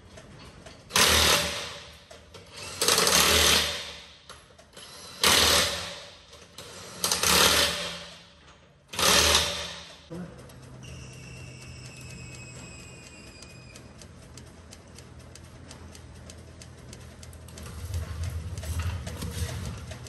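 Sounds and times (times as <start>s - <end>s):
impact wrench driving lug nuts: 0.9s - 4.1s, 4.8s - 8.2s, 8.9s - 10.0s.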